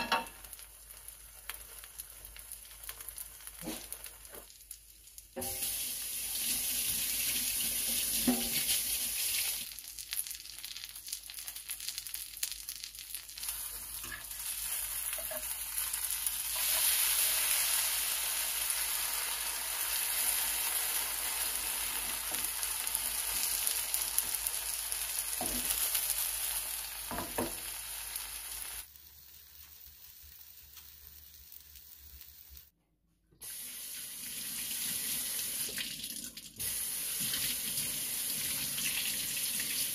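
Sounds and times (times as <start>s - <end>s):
food sizzling in a frying pan: 0.0s - 32.7s, 33.4s - 36.0s, 36.6s - 39.9s.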